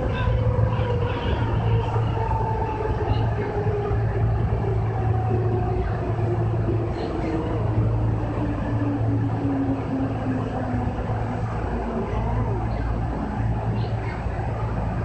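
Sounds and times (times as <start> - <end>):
electric train running: 0.0 - 15.0.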